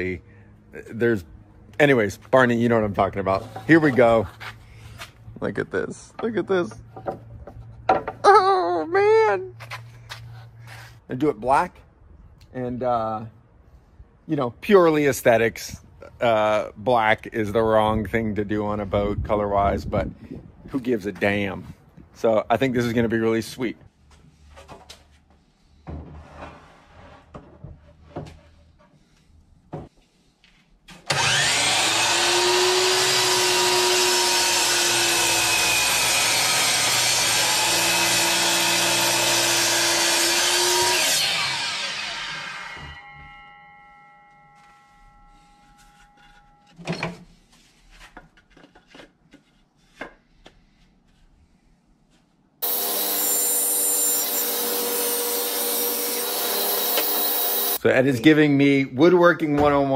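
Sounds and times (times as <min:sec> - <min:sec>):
table saw ripping wood: 0:31.0 - 0:43.6, 0:52.6 - 0:57.8
miter saw cutting wood: 0:31.1 - 0:44.5, 0:52.6 - 0:57.8.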